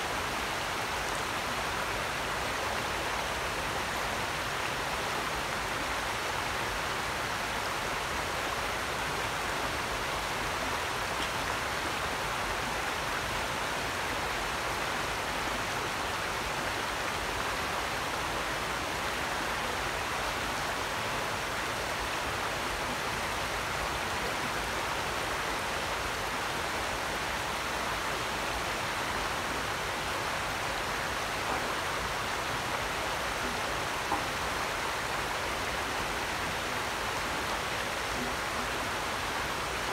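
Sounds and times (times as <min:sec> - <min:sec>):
creek flowing over stones: 0:00.0 - 0:39.9.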